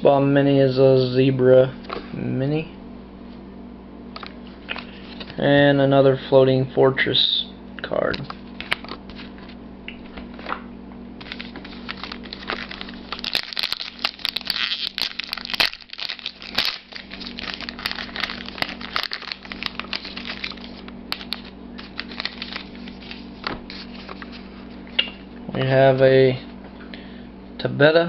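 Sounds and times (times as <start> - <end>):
wrapper tearing and crinkling: 11.2 - 24.4.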